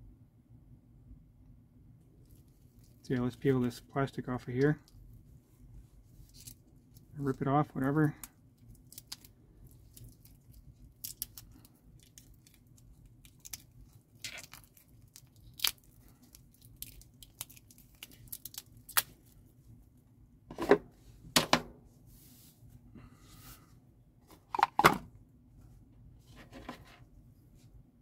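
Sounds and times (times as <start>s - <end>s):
plastic film peeling with crinkles: 2.1s - 19.7s.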